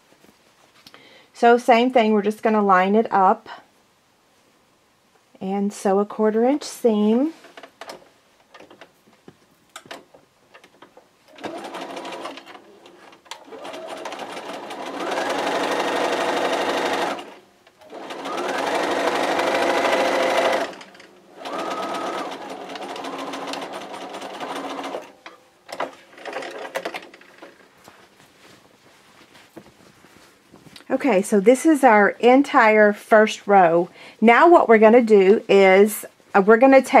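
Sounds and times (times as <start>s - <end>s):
sewing machine stitching: 11.3s - 27.6s.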